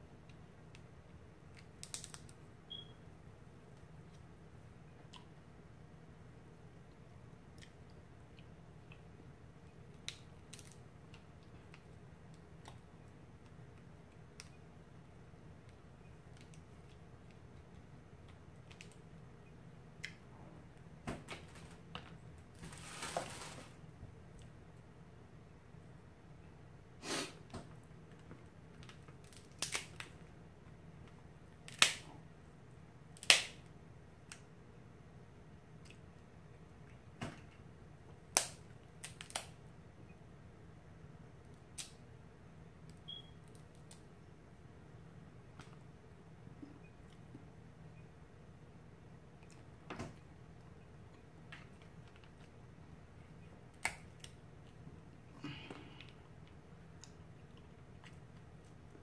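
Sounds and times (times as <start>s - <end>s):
low steady hum: 0.0s - 59.0s
crab shell cracking: 1.8s - 2.3s, 29.2s - 30.1s, 38.3s - 39.5s.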